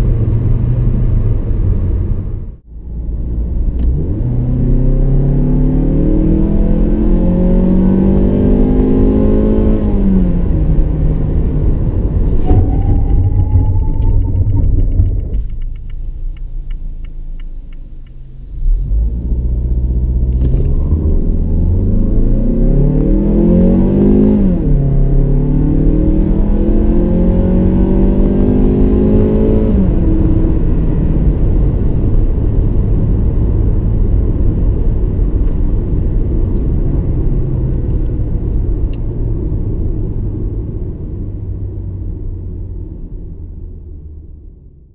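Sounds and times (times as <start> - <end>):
car engine revving: 0.0 - 40.6
road rumble: 0.0 - 44.9
hazard lights ticking: 15.5 - 18.2.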